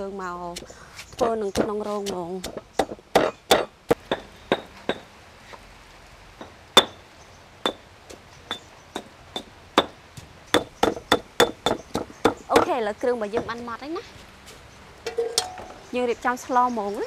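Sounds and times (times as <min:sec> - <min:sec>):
stone pestle pounding in mortar: 0:00.5 - 0:05.0, 0:08.5 - 0:12.7.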